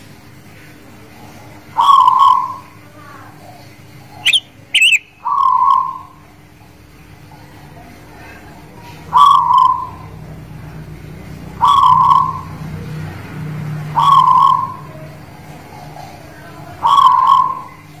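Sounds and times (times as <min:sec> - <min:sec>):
dove cooing: 0:01.2 - 0:02.8, 0:03.5 - 0:06.4, 0:07.4 - 0:10.3, 0:11.5 - 0:13.1, 0:13.8 - 0:18.0.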